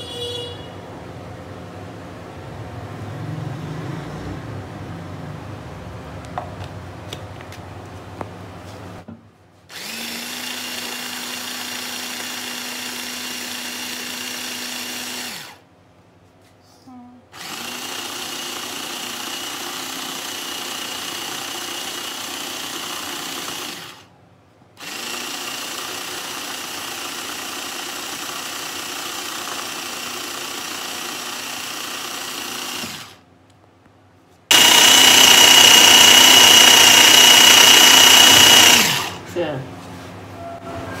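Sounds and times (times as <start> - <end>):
electric chopper motor whine: 9.7 - 15.6, 34.5 - 39.2.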